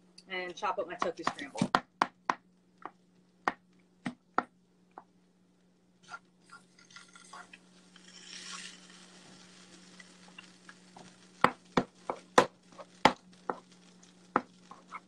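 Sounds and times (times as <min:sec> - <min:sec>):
spatula tapping on pan: 0:01.0 - 0:05.1, 0:11.4 - 0:13.6
scraping and stirring in pan: 0:06.0 - 0:15.0.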